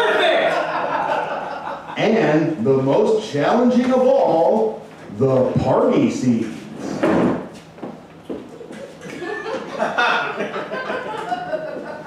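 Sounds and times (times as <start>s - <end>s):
audience laughing: 0.0s - 2.1s, 8.7s - 12.0s.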